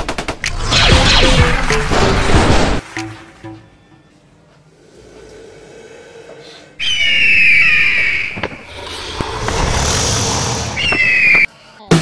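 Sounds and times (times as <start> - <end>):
shrill creature screech: 6.8 - 11.5.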